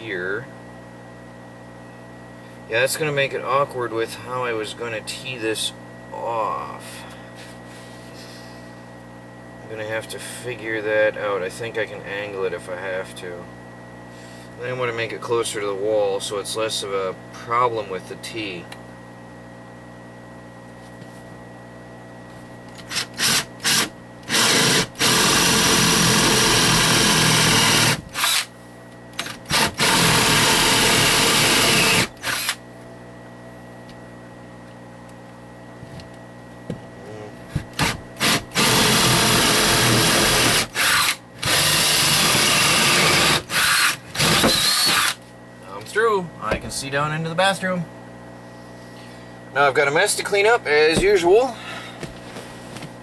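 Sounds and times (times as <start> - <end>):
cordless drill boring into wood: 22.9 - 28.5, 29.2 - 32.6, 37.8 - 45.2.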